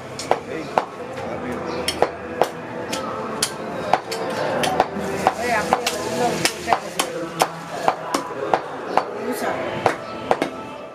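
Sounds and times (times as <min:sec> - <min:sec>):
cleaver chopping meat and bone: 0:00.2 - 0:01.0, 0:01.8 - 0:09.2.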